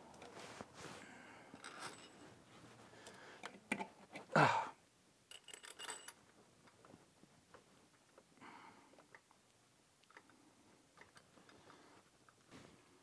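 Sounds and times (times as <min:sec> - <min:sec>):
small metal clicks and clinks: 0:05.3 - 0:06.2.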